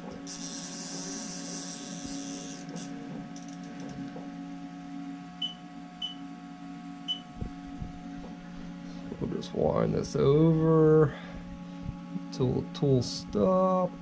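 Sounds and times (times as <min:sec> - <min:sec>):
lathe machine hum: 0:00.0 - 0:05.3.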